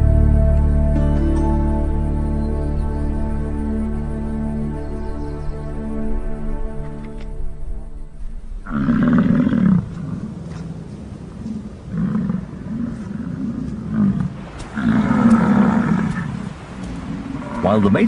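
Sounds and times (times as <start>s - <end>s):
bison bellowing: 8.6s - 10.4s.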